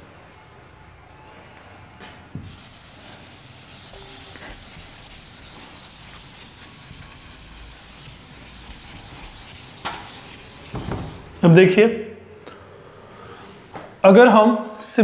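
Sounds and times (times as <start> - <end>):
duster scrubbing a blackboard: 2.4 - 11.4.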